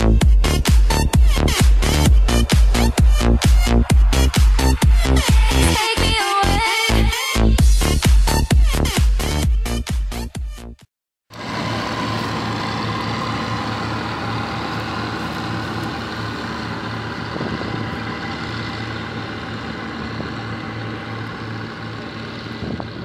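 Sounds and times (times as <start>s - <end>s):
combine harvester running: 11.3s - 23.0s.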